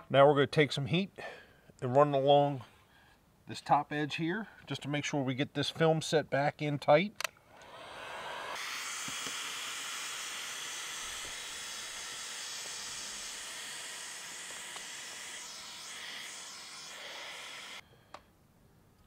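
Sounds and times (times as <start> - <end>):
heat gun blowing air: 7.5 - 17.8.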